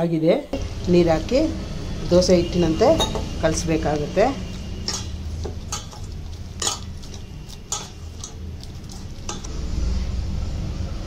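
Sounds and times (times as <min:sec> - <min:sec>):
hand mixing wet batter: 0:00.6 - 0:09.5
clinks against steel bowl: 0:02.9 - 0:03.4, 0:04.9 - 0:08.5.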